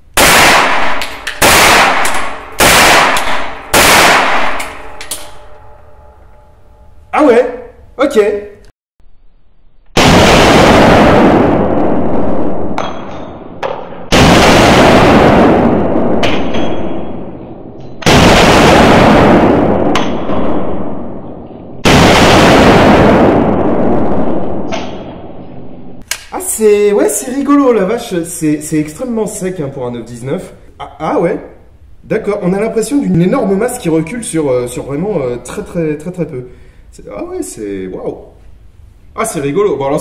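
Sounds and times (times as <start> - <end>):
loud gunshots with ringing tail: 0.2 - 5.8, 10.0 - 25.4.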